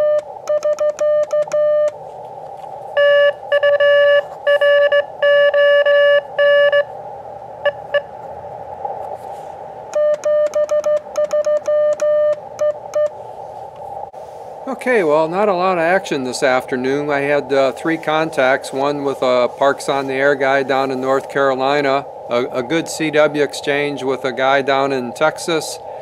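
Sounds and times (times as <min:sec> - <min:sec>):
faint weak morse code: 0:00.0 - 0:02.0, 0:03.0 - 0:06.9, 0:09.9 - 0:13.2
morse code beeps: 0:00.0 - 0:02.0, 0:03.0 - 0:06.9, 0:07.6 - 0:08.1, 0:09.9 - 0:13.2
receiver hiss: 0:00.0 - 0:26.0.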